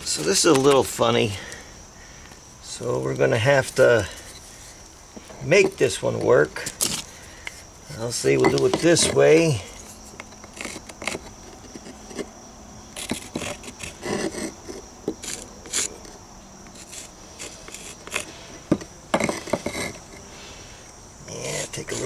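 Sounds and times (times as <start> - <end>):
high insect trill: 0.0 - 22.0
stone tapping and scraping: 5.6 - 12.3, 13.0 - 20.2
pencil scratching on stone: 13.0 - 20.2.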